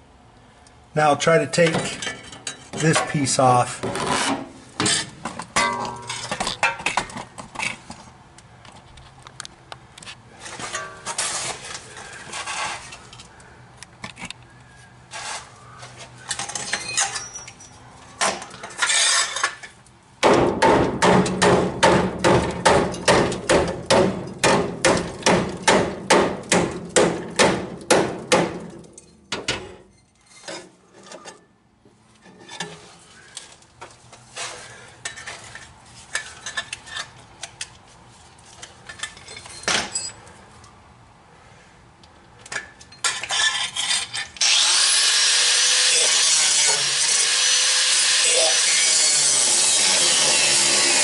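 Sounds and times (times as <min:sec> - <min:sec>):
metal clanks and scraping: 0:01.6 - 0:08.1, 0:10.0 - 0:13.3, 0:15.1 - 0:19.8, 0:20.8 - 0:37.8, 0:38.4 - 0:40.3, 0:42.4 - 0:44.5.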